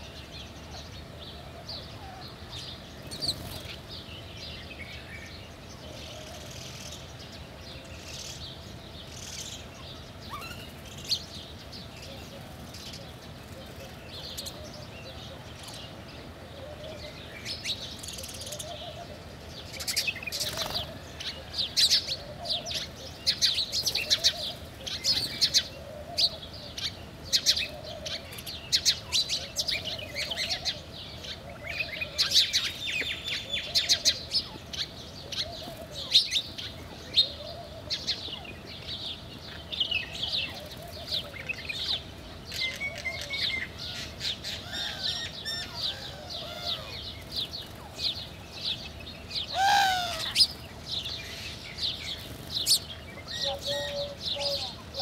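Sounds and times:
sparrows chirping: 0.0s - 55.0s
dove cooing: 5.8s - 7.0s, 12.1s - 38.6s, 40.1s - 42.0s, 42.6s - 43.8s, 52.6s - 55.0s.

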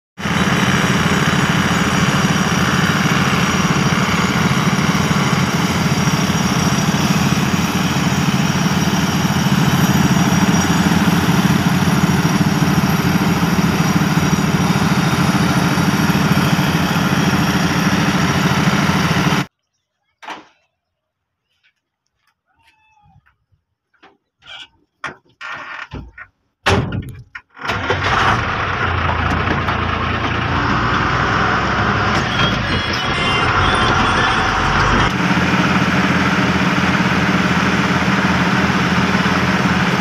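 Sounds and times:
heavy machinery engine drone: 0.2s - 19.5s, 27.7s - 40.0s.

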